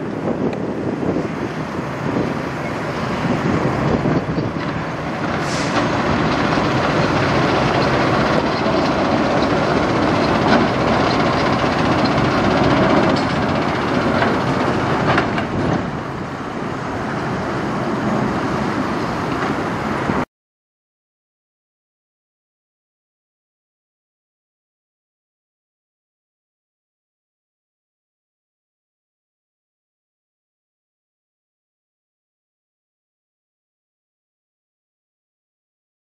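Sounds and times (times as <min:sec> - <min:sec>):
truck diesel engine passing: 0:00.1 - 0:20.3.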